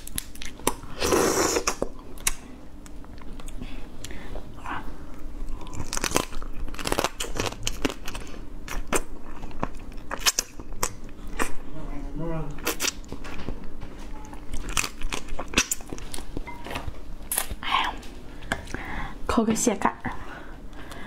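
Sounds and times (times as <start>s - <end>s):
crab cracking and squelching: 0.0s - 0.8s, 5.4s - 11.6s
crunching bites and chewing: 0.0s - 1.0s, 5.1s - 11.6s, 12.5s - 13.6s, 14.3s - 17.6s.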